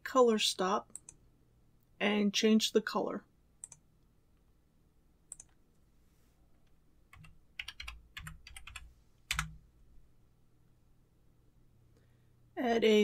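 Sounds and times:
computer keyboard typing: 3.6 - 3.8, 5.3 - 5.6, 7.1 - 9.6.

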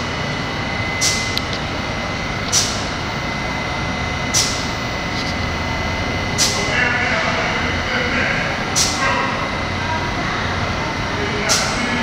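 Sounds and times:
train hum with high whine: 0.0 - 12.0.

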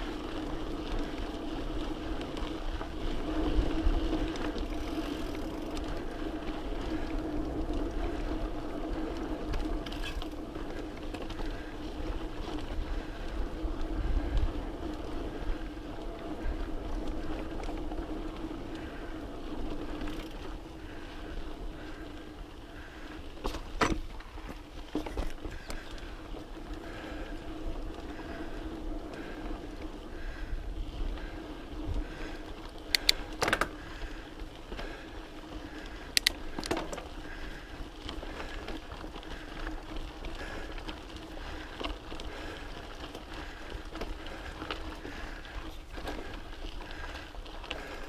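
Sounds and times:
bike rolling on gravel: 0.0 - 48.0
bike clacking over rocks: 23.3 - 26.0, 32.9 - 34.1.

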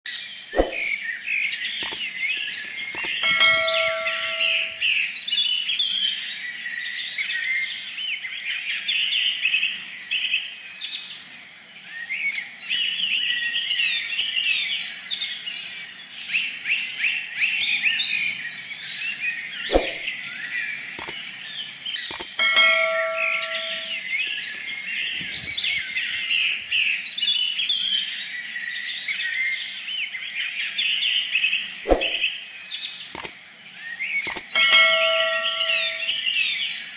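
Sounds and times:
small birds chirping: 0.1 - 36.9
sharp clicks: 1.8 - 3.4, 21.0 - 21.2, 22.1 - 22.5, 31.9 - 32.2, 33.2 - 33.4, 34.3 - 34.6
bell-like ding: 2.6 - 4.9, 22.1 - 24.6, 34.3 - 36.2.

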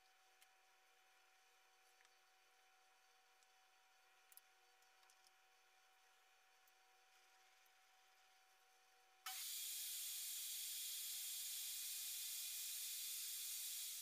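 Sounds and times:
table saw motor whine: 9.3 - 14.0.

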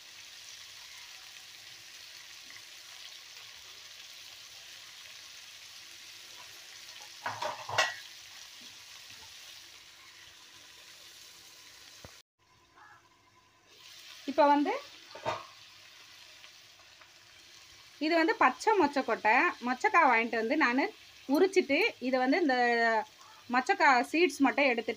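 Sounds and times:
food sizzling in oil: 0.0 - 24.9
metal lid clanking on pan: 7.0 - 8.1, 15.1 - 15.6.

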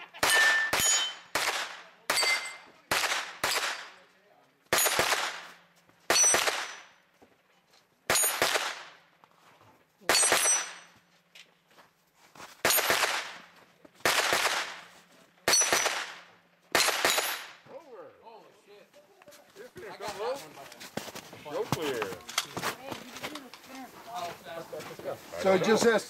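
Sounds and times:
gunshots: 0.0 - 4.0, 4.7 - 6.9, 8.1 - 9.0, 10.0 - 10.9, 12.6 - 17.6
metallic ring of steel target: 0.2 - 1.4, 2.1 - 2.8, 6.1 - 7.0, 8.1 - 8.4, 10.1 - 11.0, 15.5 - 15.9.

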